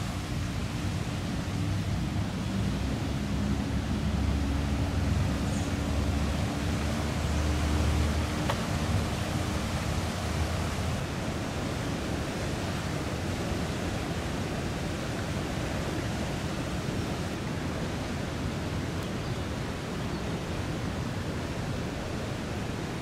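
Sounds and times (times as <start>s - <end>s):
floodwater rushing: 0.0s - 23.0s
low engine hum: 0.1s - 12.8s.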